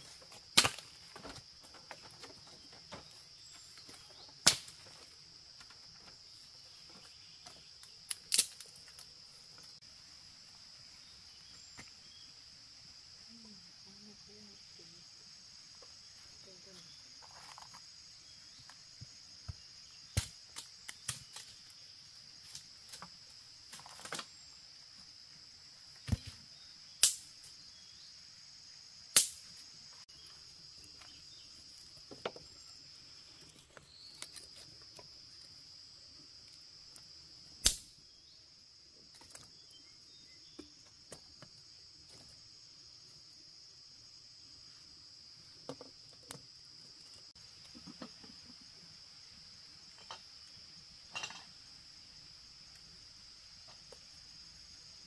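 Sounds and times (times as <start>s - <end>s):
insects droning: 0.0s - 55.0s
sharp cracks: 0.6s - 1.0s, 4.4s - 4.8s, 8.1s - 8.8s, 27.0s - 27.3s, 29.1s - 29.5s, 37.6s - 38.0s.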